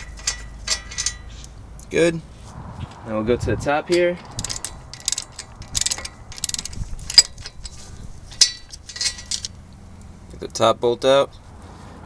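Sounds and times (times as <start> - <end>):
hand ratchet clicking: 4.2 - 9.6.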